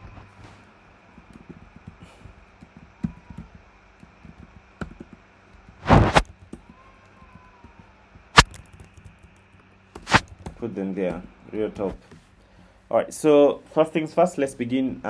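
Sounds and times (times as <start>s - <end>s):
short whoosh of noise: 5.8s - 6.2s.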